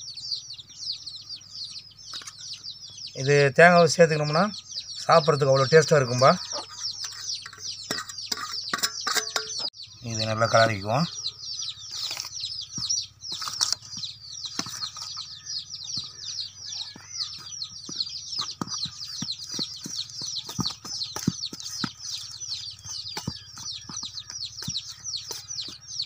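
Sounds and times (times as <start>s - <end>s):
birds chirping: 0.0s - 26.0s
ladle clinking and scraping metal: 6.5s - 9.7s.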